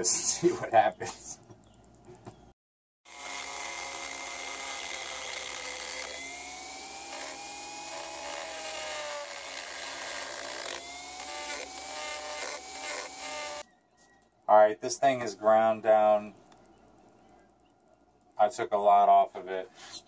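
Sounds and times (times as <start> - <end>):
rotary tool grinding metal: 3.1 - 13.6.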